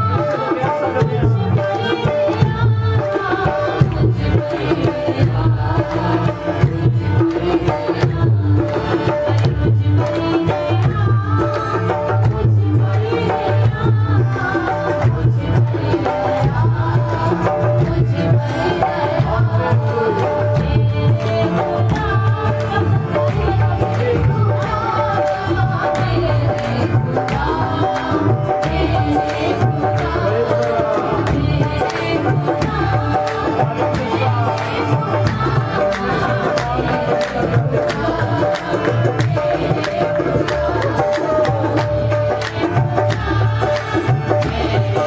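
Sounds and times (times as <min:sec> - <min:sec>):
group singing devotional song: 0:00.0 - 0:45.0
hand drum beat: 0:00.0 - 0:45.0.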